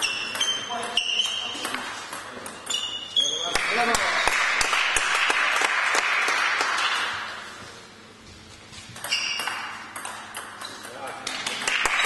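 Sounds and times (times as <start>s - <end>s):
spectators clapping: 3.5s - 7.4s, 11.6s - 12.0s.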